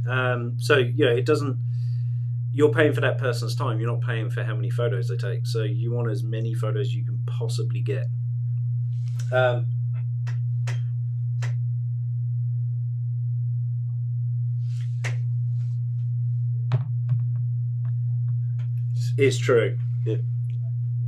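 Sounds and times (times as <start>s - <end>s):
low electrical hum: 0.0s - 21.0s
short voice sound: 9.2s - 9.6s.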